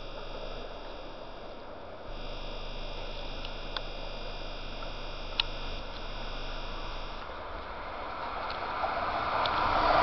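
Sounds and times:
camera zoom motor whine: 0:00.0 - 0:07.4
low background noise: 0:00.0 - 0:10.0
faint clicks: 0:03.3 - 0:04.0, 0:04.7 - 0:08.7, 0:09.4 - 0:09.7.

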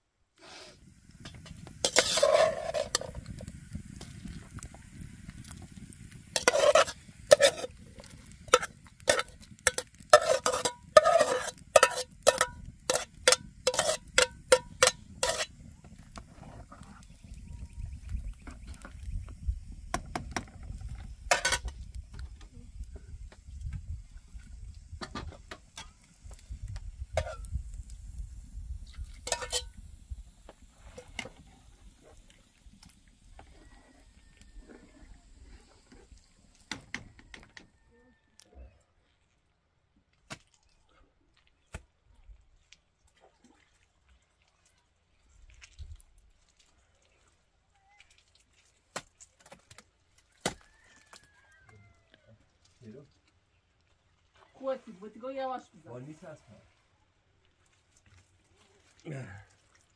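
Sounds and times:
metal spoon clinking on pot: 0:01.9 - 0:03.2, 0:06.4 - 0:07.7, 0:08.5 - 0:15.5, 0:27.2 - 0:27.4, 0:29.3 - 0:29.7.

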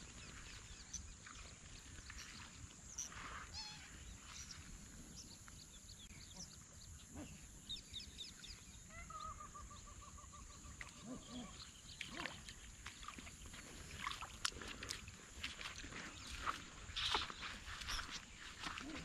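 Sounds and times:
footsteps on wet grass: 0:00.0 - 0:04.6, 0:12.2 - 0:19.0
birds chirping: 0:00.0 - 0:14.2, 0:14.8 - 0:19.0.

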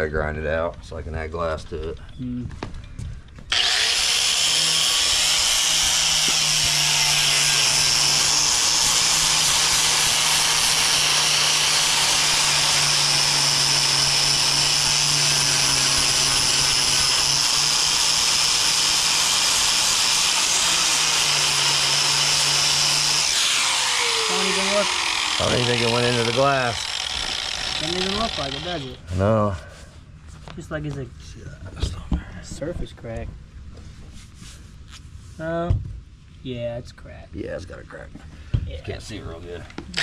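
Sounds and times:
power grinder grinding: 0:03.5 - 0:29.3.

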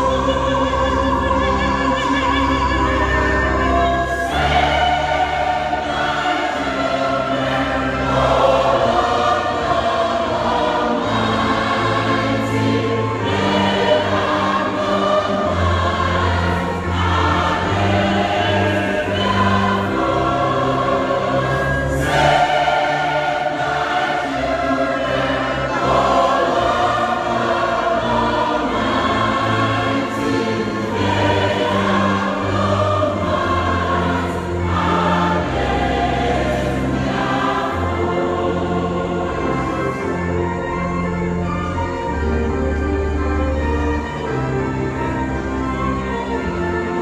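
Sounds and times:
choir singing: 0:00.0 - 0:47.0.

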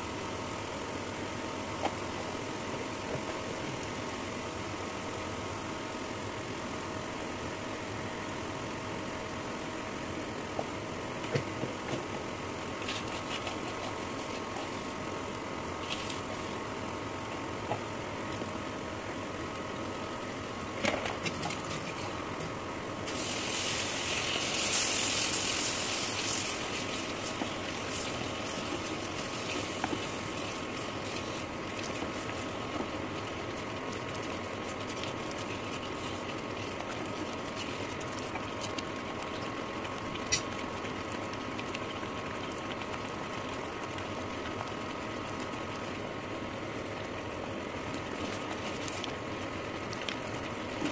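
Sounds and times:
electric cooktop hum: 0:00.0 - 0:50.9
spices sizzling in oil: 0:23.0 - 0:32.5.

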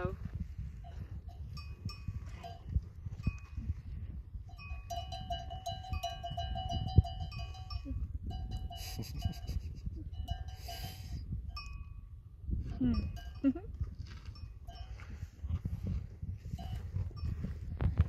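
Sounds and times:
small bell clanking: 0:00.9 - 0:03.5, 0:04.5 - 0:09.5, 0:10.1 - 0:12.0, 0:12.8 - 0:13.6.

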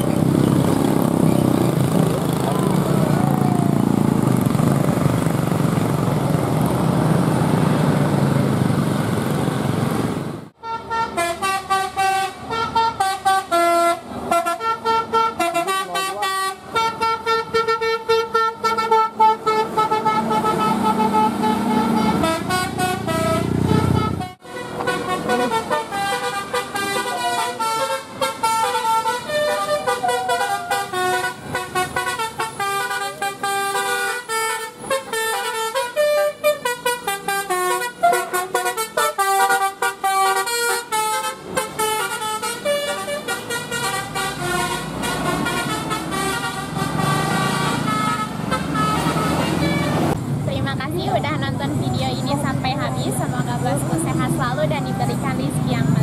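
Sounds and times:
bus diesel engine running: 0:00.0 - 0:56.0
musical bus horn melody: 0:10.6 - 0:50.2.

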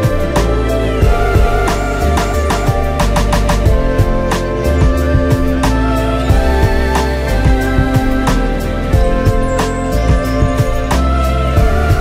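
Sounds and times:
held instrumental notes: 0:00.0 - 0:12.0
steady percussion beat: 0:00.0 - 0:12.0.

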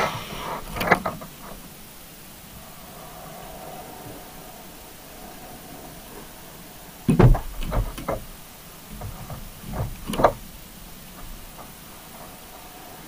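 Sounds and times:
steady hiss: 0:00.0 - 0:13.0
sharp knocks and thuds: 0:07.1 - 0:08.3, 0:08.9 - 0:10.4.

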